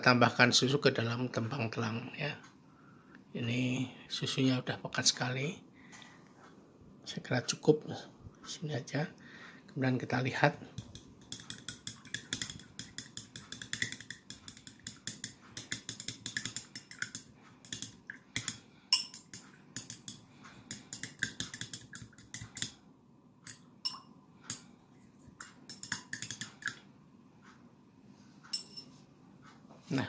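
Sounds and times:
spoon clinking in a glass: 10.8s - 22.7s, 23.5s - 24.6s, 25.4s - 26.8s, 28.6s - 28.9s.

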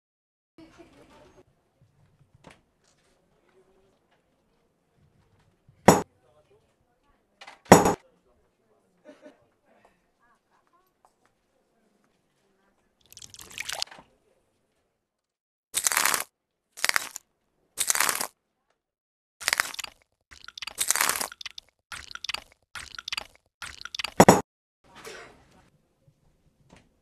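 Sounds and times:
cartoon retching and spewing: 13.0s - 13.8s, 15.8s - 17.2s, 17.8s - 18.3s, 19.4s - 24.4s.

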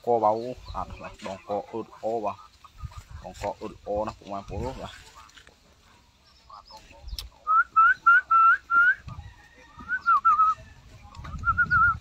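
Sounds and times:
person whistling: 7.5s - 9.0s, 9.9s - 10.6s, 11.4s - 12.0s.

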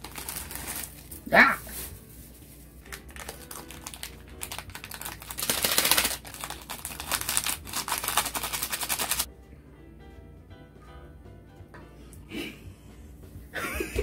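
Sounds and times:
plastic packets crinkling: 0.0s - 9.3s.

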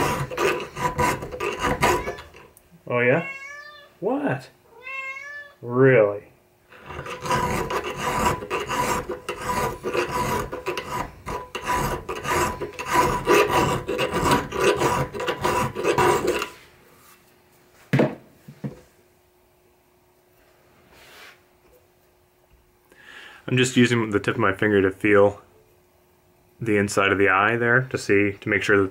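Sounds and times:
file rasping on steel: 0.0s - 2.5s, 6.7s - 16.6s.

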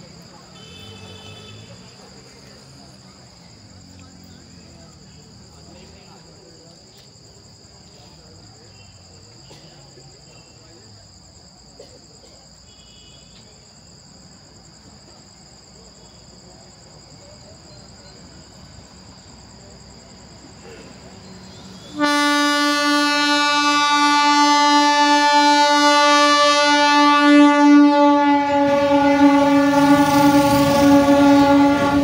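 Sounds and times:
crickets chirping: 0.0s - 32.0s
train horn blast: 21.6s - 32.0s.

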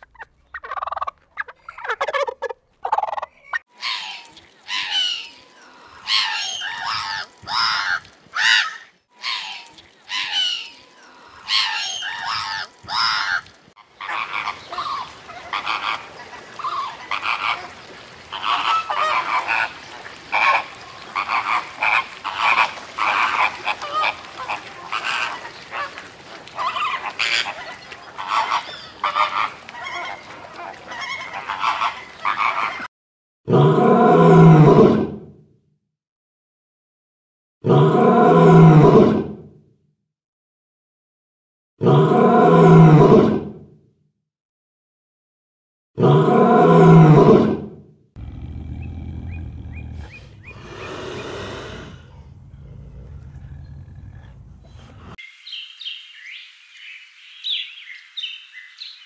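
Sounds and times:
flamingos honking: 11.4s - 32.9s.

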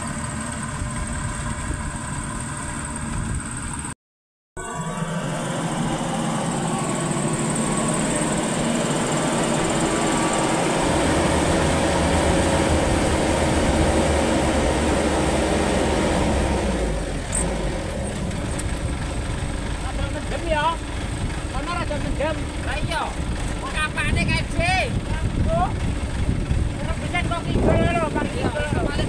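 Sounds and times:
combine harvester engine drone: 0.0s - 3.9s, 4.6s - 29.0s.

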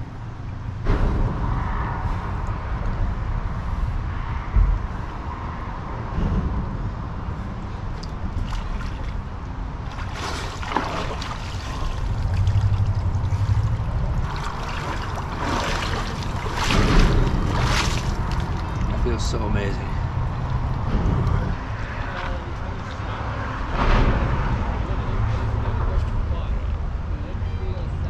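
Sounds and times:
water splashing and sloshing: 0.0s - 25.7s
wind rumble on microphone: 0.0s - 28.0s.

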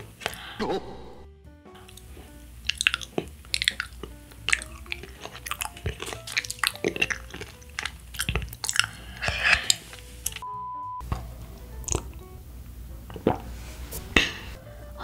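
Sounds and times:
chewing crispy fried chicken: 1.8s - 10.4s, 11.7s - 12.3s
wet mouth sounds: 1.8s - 10.4s, 11.1s - 12.2s, 13.1s - 13.5s.

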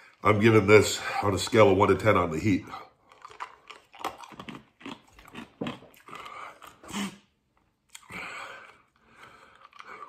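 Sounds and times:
man breathing hard: 8.0s - 10.0s.

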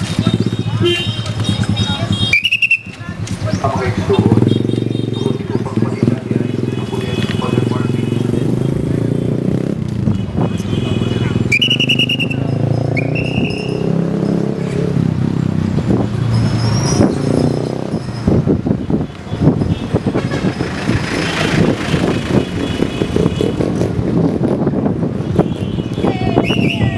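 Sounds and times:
vehicle engine and road noise: 0.0s - 26.9s
wind buffeting microphone: 12.4s - 26.9s.

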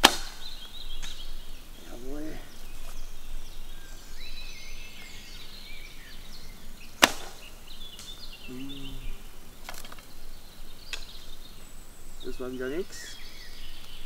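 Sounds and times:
bowstring snapping: 0.0s - 1.3s, 7.0s - 8.3s, 10.9s - 11.2s
small birds chirping: 0.0s - 14.0s
low grunt: 8.5s - 9.2s.

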